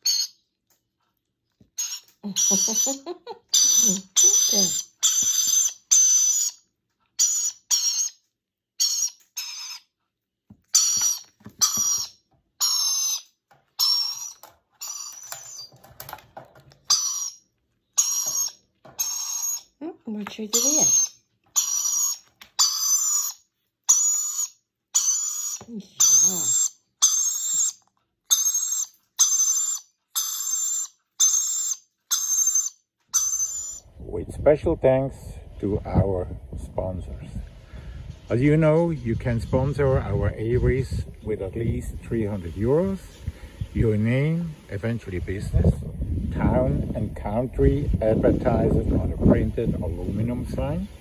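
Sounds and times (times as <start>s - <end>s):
parrot chick begging calls: 0.0s - 0.4s, 1.8s - 6.6s, 7.2s - 8.2s, 8.8s - 9.9s, 10.7s - 15.8s, 16.8s - 19.8s, 20.4s - 33.9s.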